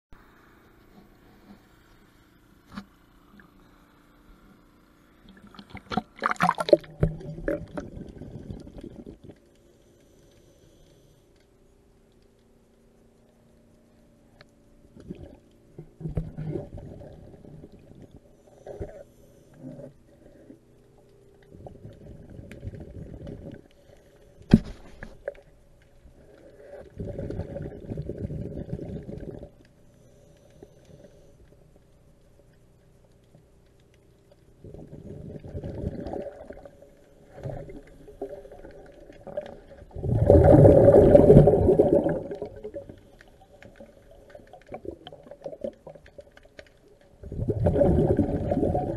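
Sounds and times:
faint steady hum: 0.1 - 48.9
diver exhaling bubbles: 5.4 - 9.3, 26.8 - 29.6, 34.6 - 36.7, 37.4 - 43.0, 47.2 - 48.9.

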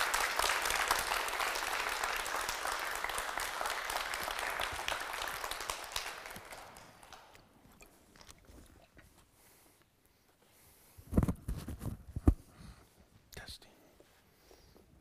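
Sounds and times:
audience applause: 0.0 - 7.4.

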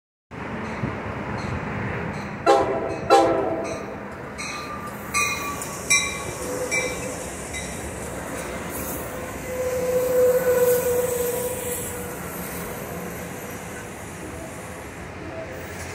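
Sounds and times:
train cars rolling past: 0.3 - 15.9
train horn blasts: 2.4 - 3.8, 6.2 - 7.2, 9.3 - 12.3
steady squeal: 8.5 - 15.9.

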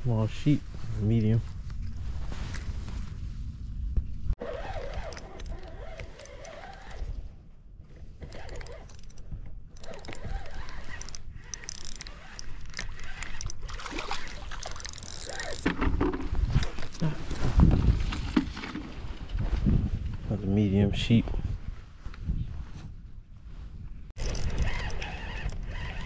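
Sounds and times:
clothing rustling against microphone: 0.0 - 11.0, 12.1 - 26.0
low wind rumble: 0.0 - 13.8, 15.6 - 26.0
small handling clicks: 8.2 - 13.6.

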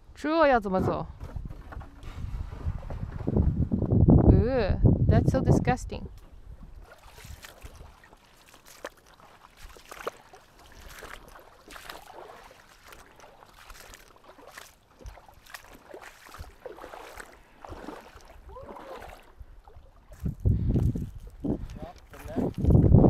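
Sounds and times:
water splashing: 6.1 - 22.8
footsteps wading through creek: 6.2 - 23.0.

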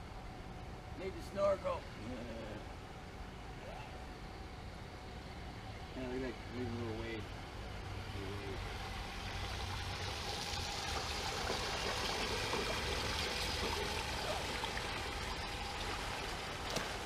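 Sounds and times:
water splashing and churning: 8.6 - 17.0.

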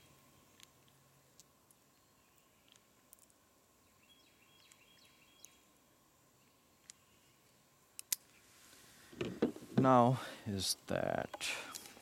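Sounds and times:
faint bird chirps: 3.8 - 8.6.

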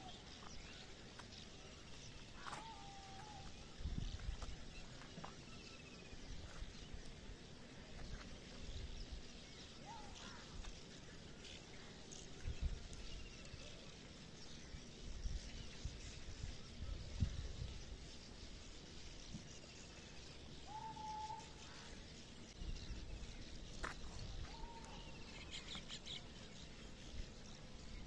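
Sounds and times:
background hiss: 0.0 - 28.0
faint bird chirps: 0.0 - 28.0.

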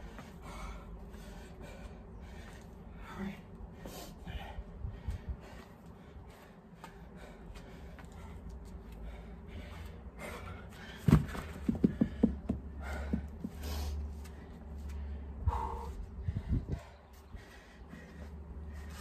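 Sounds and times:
person breathing hard: 0.0 - 19.0
dumbbells thudding on mat: 11.0 - 13.2
dumbbells knocking: 11.1 - 13.3.

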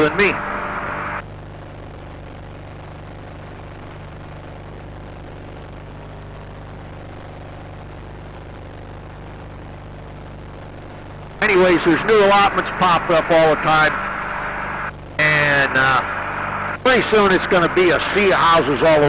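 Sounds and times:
aircraft engine droning: 0.0 - 1.2, 10.7 - 19.0.

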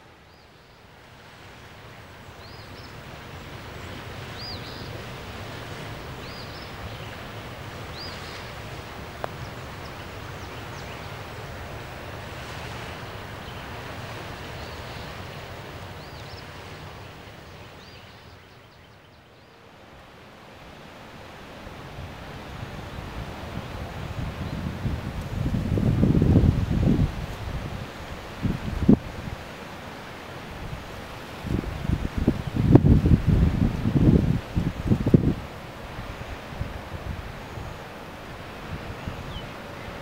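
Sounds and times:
wind gusting: 20.8 - 40.0.

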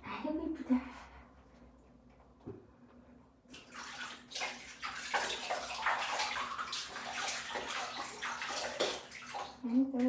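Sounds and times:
water splashing in plastic tub: 3.5 - 10.0.

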